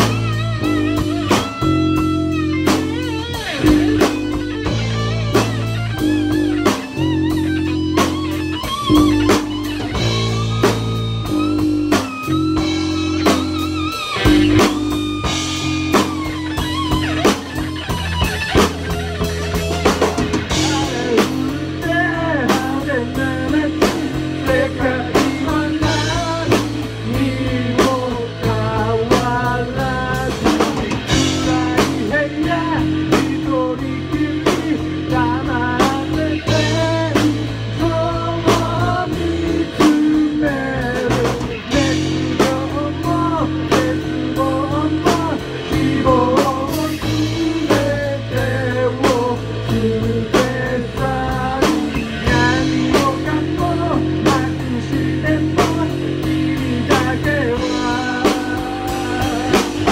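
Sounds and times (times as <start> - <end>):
bass guitar: 0.0 - 59.9
drum kit: 0.0 - 59.9
electric guitar: 0.0 - 59.9
person singing lead vocal: 0.0 - 59.9.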